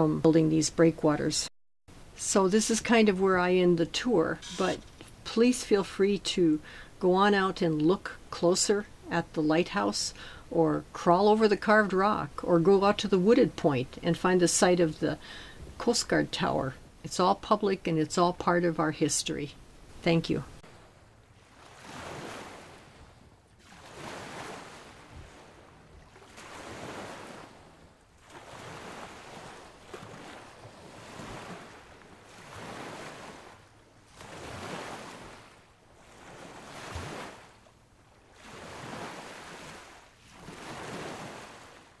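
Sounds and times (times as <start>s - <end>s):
lake waves washing ashore: 20.6s - 42.0s.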